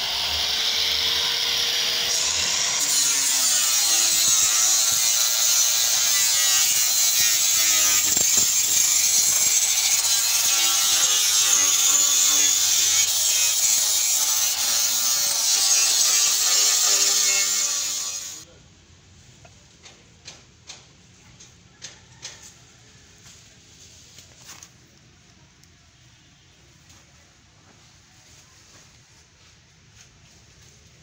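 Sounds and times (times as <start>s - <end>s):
angle grinder grinding steel: 0.0s - 18.4s.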